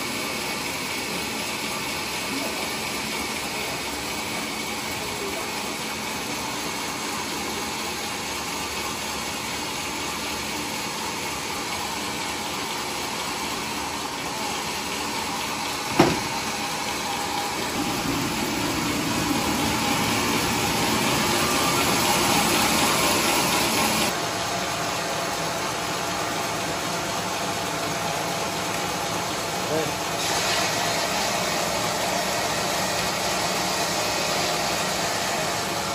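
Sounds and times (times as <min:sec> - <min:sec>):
sawmill machinery running: 0:00.0 - 0:35.9
sharp knock: 0:15.9 - 0:16.4.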